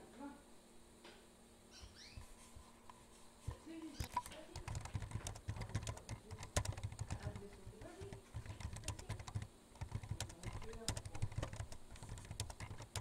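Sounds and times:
keyboard key clicks: 4.0s - 13.0s.

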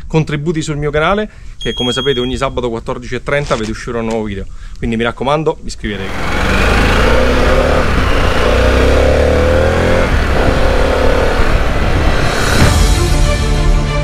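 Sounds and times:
wind rushing over microphone: 6.0s - 12.8s
motorcycle engine accelerating: 6.0s - 13.0s.

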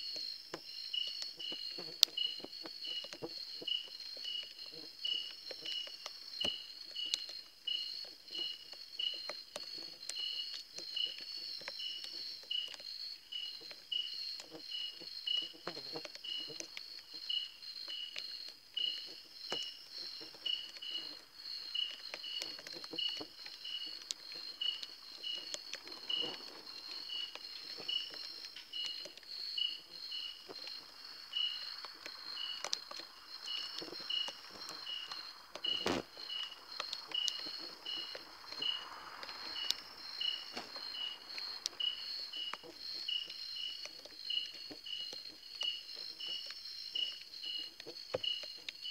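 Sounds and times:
insect chirping: 0.0s - 48.9s
insect trilling: 0.0s - 48.9s
faint clicks and taps: 15.3s - 48.9s.

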